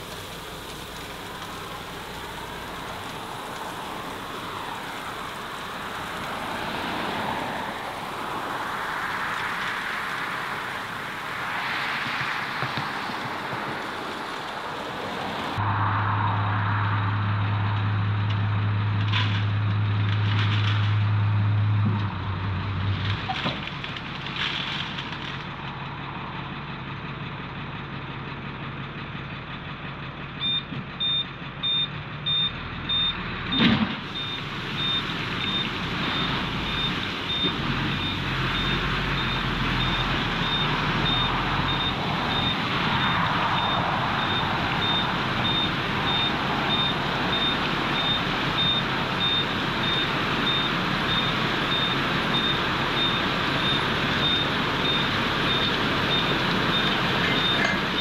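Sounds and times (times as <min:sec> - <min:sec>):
gravel spilling out: 0:00.0 - 0:15.6, 0:34.0 - 0:58.0
dump truck running: 0:00.0 - 0:58.0
back-up alarm beeping: 0:30.4 - 0:33.6, 0:34.2 - 0:58.0.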